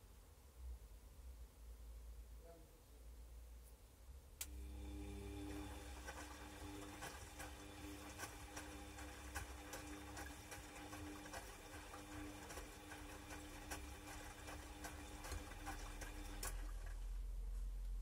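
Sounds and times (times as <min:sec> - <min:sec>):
washing machine motor hum: 0:04.4 - 0:18.0
wet washing clicks and patter: 0:05.5 - 0:17.2.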